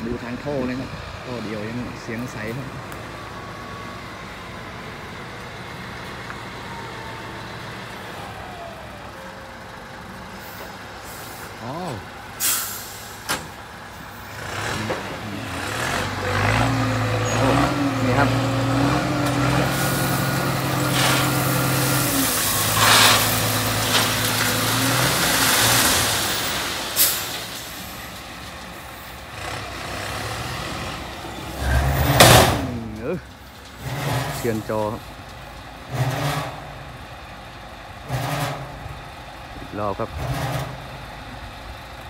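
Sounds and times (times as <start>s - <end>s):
diesel truck engine revving: 0.0s - 42.0s
rocks sliding and pouring out: 19.7s - 28.8s.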